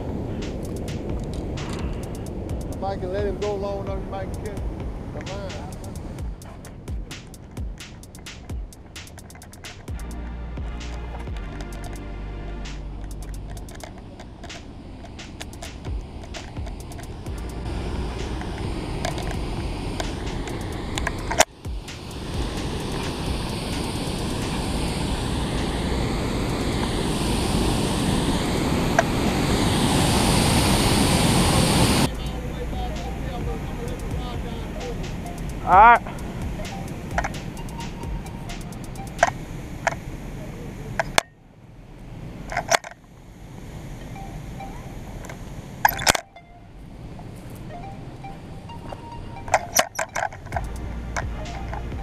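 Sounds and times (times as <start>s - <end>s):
low rushing noise: 0.0s - 52.0s
metallic clinks and knocks: 5.8s - 10.0s, 48.8s - 51.9s
water rushing over spillway: 13.8s - 38.3s.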